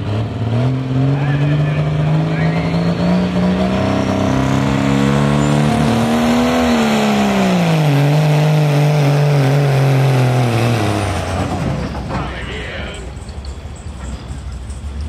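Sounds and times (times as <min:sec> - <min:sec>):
vehicle engine revving hard: 0:00.0 - 0:11.8.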